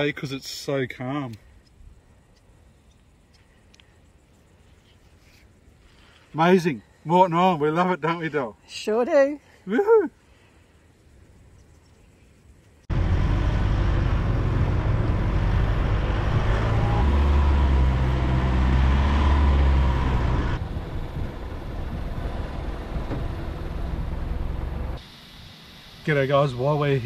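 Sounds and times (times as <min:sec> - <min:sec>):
vehicle engine drone: 0:12.9 - 0:27.0
wind noise: 0:19.9 - 0:25.0.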